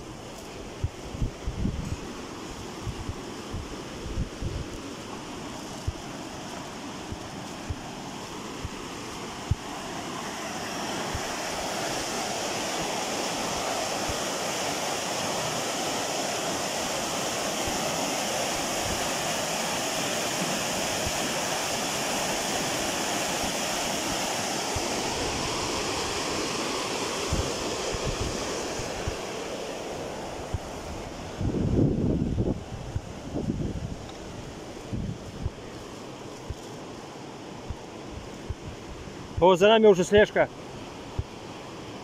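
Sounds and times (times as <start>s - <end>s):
white water rushing over rocks: 0.0s - 42.0s.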